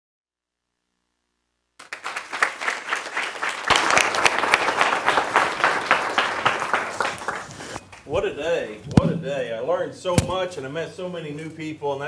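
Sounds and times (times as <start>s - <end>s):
audience applauding: 1.8s - 8.1s.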